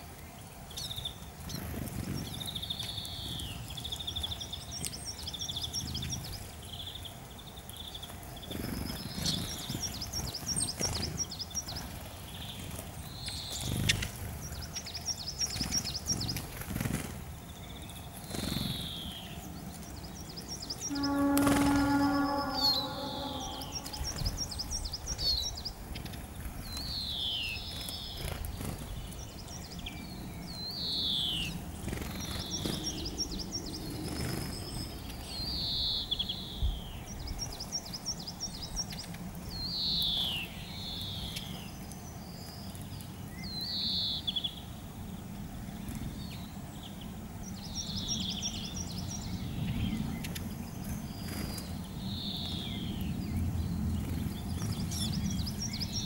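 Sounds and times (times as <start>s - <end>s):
songbirds calling: 0.0s - 56.0s
low background rumble: 5.4s - 35.4s
high bird twittering: 20.1s - 25.7s.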